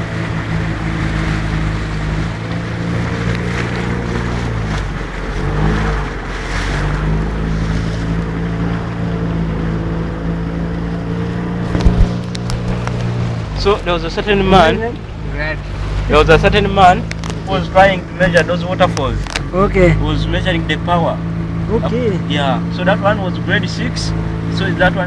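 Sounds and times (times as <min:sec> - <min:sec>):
motorboat engine running: 0:00.0 - 0:25.0
water rushing along hull: 0:00.0 - 0:25.0.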